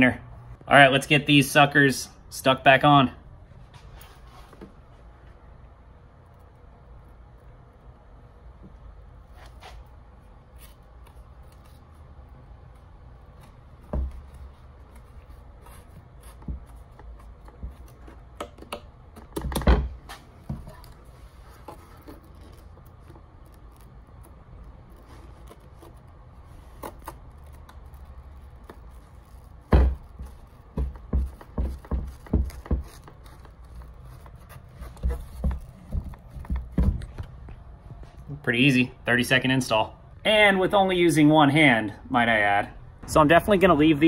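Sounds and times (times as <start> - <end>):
handling knocks and taps: 13.4 - 15.1, 15.8 - 21.0, 28.6 - 38.4.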